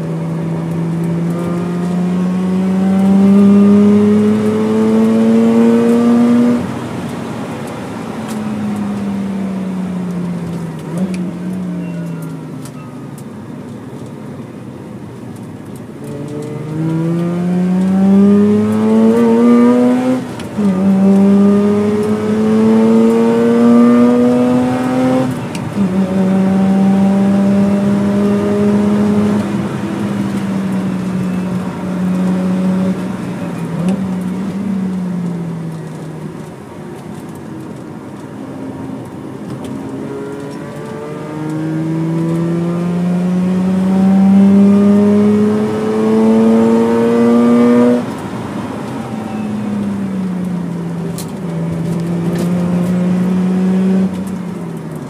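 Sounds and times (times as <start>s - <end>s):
rotary engine accelerating: 0.0s - 11.7s, 16.0s - 36.5s, 38.5s - 55.0s.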